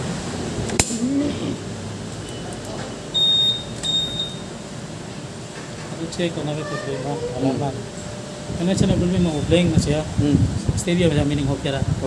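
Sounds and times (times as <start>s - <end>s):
short high-pitched electronic beeps: 3.1s - 4.5s.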